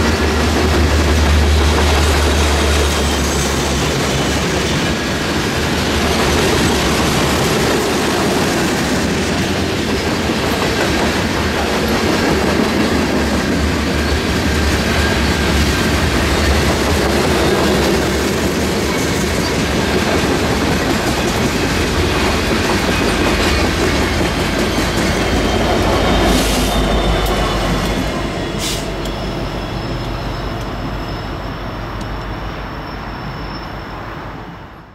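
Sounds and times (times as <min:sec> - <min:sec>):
train wheels clattering on rails: 0:00.0 - 0:32.4.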